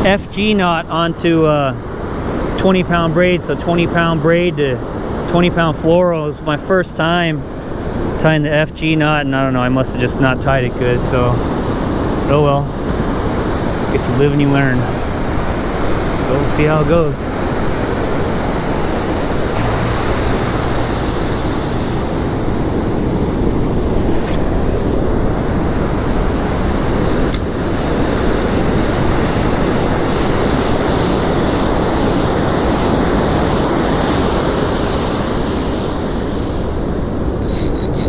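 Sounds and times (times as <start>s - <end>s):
ocean surf breaking on beach: 0.0s - 38.0s
wind noise on microphone: 17.2s - 38.0s.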